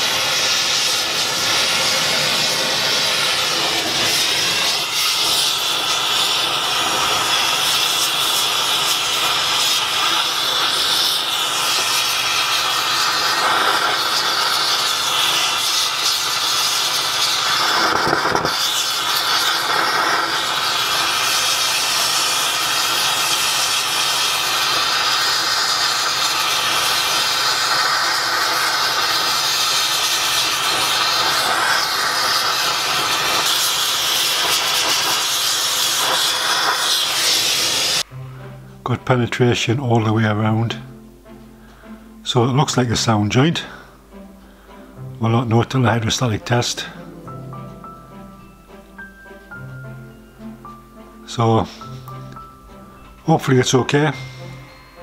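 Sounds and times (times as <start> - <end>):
torch flame hissing: 0.0 - 38.5.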